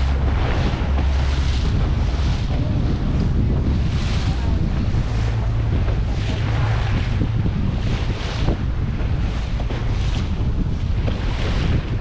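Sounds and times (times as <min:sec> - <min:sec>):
steady low hum: 0:00.0 - 0:11.1
water rushing past boat hull: 0:00.0 - 0:12.0
wind buffeting microphone: 0:00.0 - 0:12.0.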